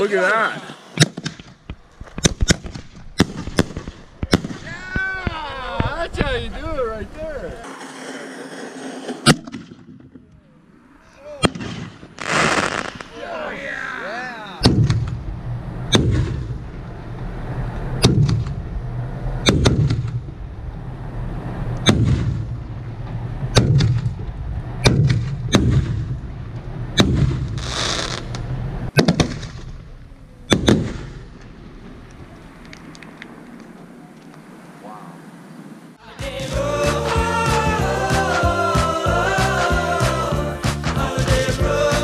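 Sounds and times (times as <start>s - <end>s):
fireworks bangs with echo: 2.2s - 5.9s, 11.4s - 13.2s, 14.6s - 15.3s, 28.9s - 32.0s.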